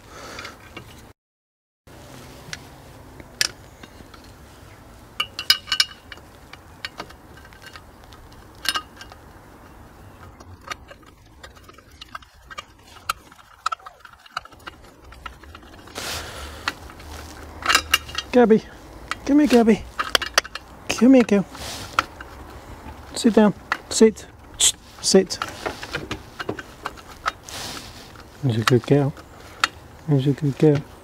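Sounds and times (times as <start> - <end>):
rustling scrape: 1.9 - 31.0
screwdriver clinking on metal frame: 5.2 - 16.0, 16.6 - 22.4.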